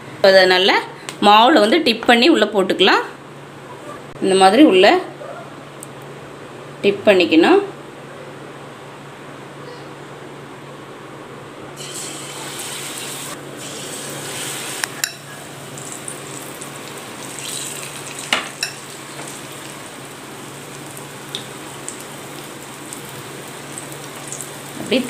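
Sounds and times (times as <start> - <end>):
deep-frying sizzle in oil: 11.8 - 25.0.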